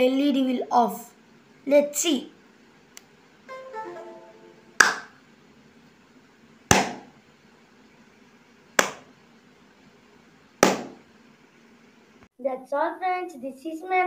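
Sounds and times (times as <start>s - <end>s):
hand claps: 4.8s - 5.2s, 8.8s - 9.1s.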